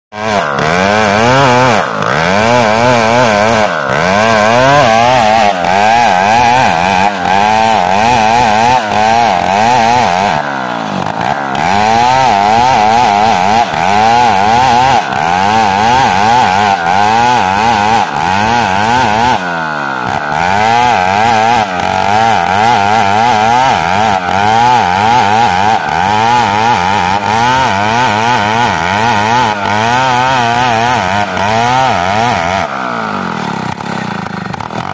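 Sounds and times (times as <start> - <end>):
chainsaw cutting wood: 0.1 - 34.9.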